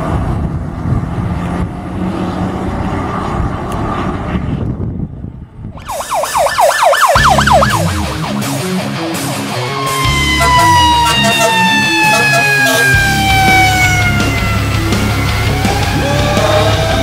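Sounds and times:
fire engine running: 5.5s - 17.0s
electronic siren yelping: 5.8s - 17.0s
music: 7.2s - 17.0s.

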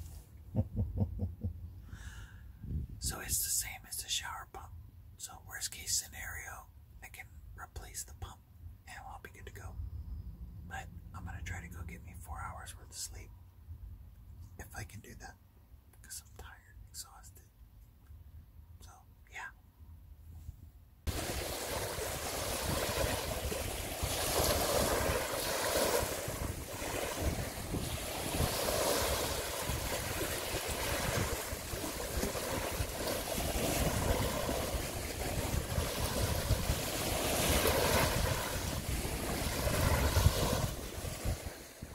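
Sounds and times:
wind rumbling on microphone: 2.6s - 3.4s, 20.4s - 41.9s
small waves washing on beach: 21.1s - 41.9s.

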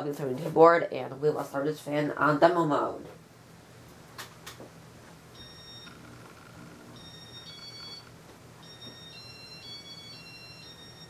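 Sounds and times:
low steady hum: 0.0s - 11.0s
electronic beeps tune: 5.4s - 11.0s.

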